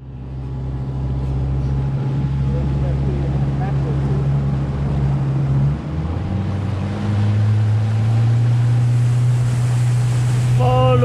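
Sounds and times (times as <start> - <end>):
boat motor running: 0.0 - 11.0.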